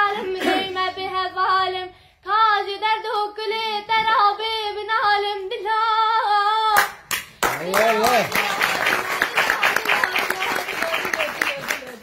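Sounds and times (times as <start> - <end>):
girl singing unaccompanied: 0.0 - 6.8.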